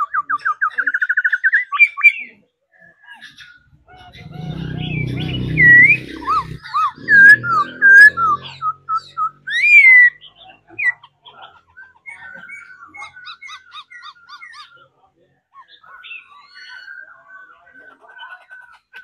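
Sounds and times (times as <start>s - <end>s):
low hum: 3.7s - 8.9s.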